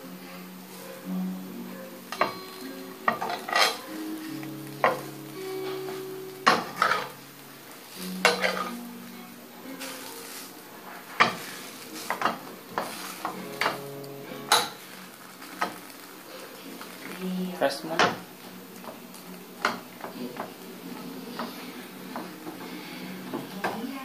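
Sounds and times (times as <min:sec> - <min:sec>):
pancake sizzling: 0:00.0 - 0:24.0
metal spatula scraping frying pan: 0:03.0 - 0:07.2, 0:07.9 - 0:08.9, 0:09.8 - 0:15.8.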